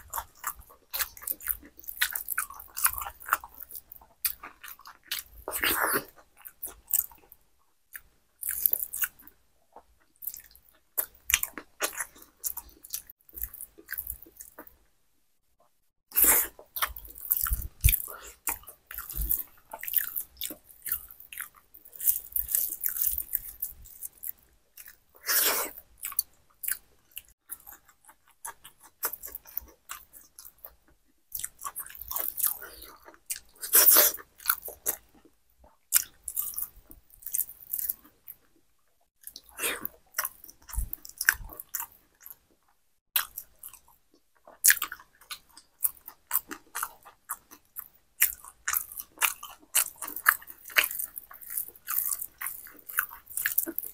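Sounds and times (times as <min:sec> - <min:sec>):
wet chewing: 0:00.0 - 0:09.4, 0:16.1 - 0:30.7, 0:31.3 - 0:35.3, 0:39.2 - 0:42.5, 0:44.5 - 0:53.9
crunching bites: 0:16.1 - 0:26.8.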